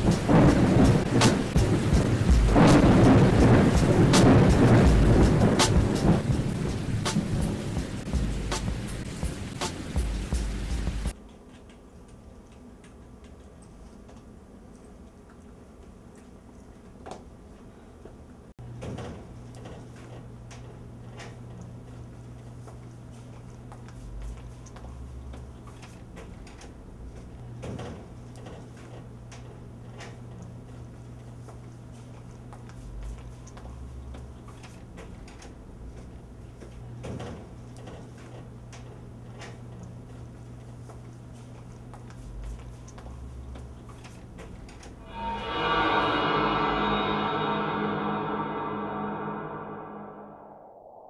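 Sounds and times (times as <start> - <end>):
steady low hum: 45.0 - 51.0.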